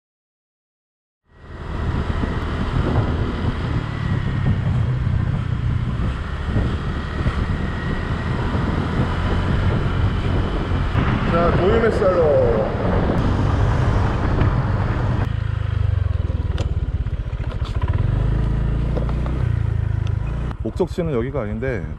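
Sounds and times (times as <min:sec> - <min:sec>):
scooter engine running: 0:01.3 - 0:10.6, 0:14.8 - 0:20.7
wind buffeting microphone: 0:01.5 - 0:15.3.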